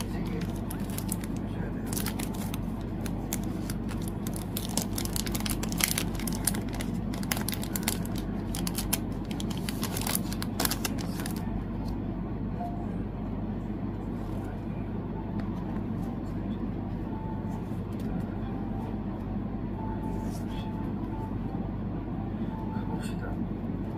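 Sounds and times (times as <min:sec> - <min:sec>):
packaging crinkling and rustling: 0:00.0 - 0:11.5.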